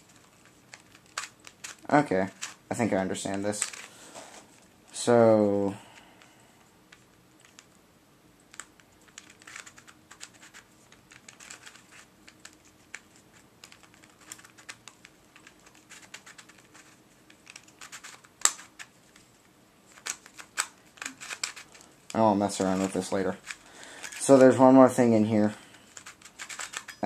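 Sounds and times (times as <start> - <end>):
plastic puzzle clicking: 0.1 - 2.6, 3.5 - 3.9, 8.4 - 18.9, 19.9 - 24.3, 25.9 - 27.0.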